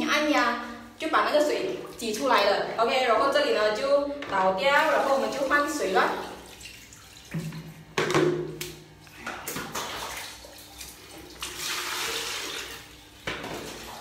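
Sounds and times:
water running: 0.0s - 14.0s
water splashing in bucket: 4.3s - 14.0s.

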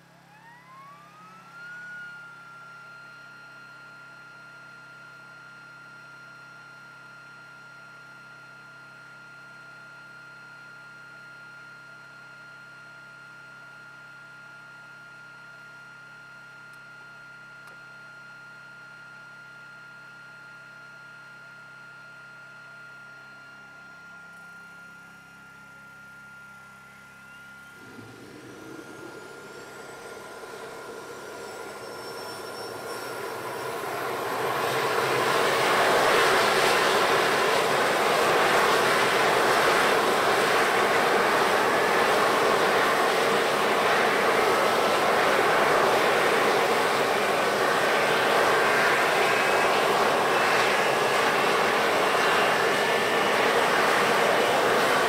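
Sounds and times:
jet engine starting up: 0.0s - 3.6s, 27.2s - 55.0s.

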